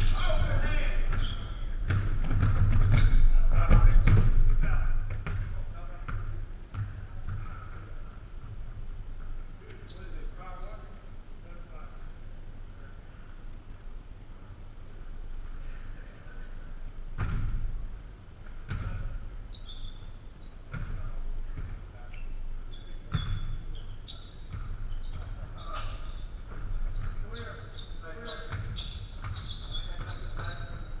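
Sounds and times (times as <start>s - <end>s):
sneaker squeaks: 0.0s - 4.6s, 9.7s - 10.9s, 14.4s - 16.2s, 17.2s - 31.0s
basketball bouncing on hardwood floor: 0.0s - 7.5s, 17.2s - 17.6s, 18.7s - 19.0s.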